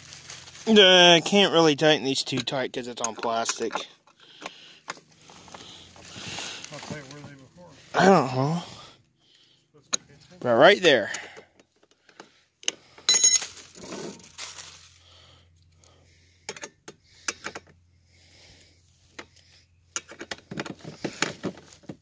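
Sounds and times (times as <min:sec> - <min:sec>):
ringing metallic clink: 0:13.1 - 0:13.6.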